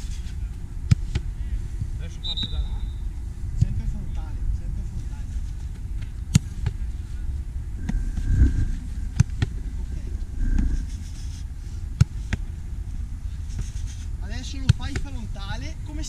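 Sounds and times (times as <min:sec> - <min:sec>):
low rumble: 0:00.0 - 0:14.6
football kick thuds: 0:09.1 - 0:09.6.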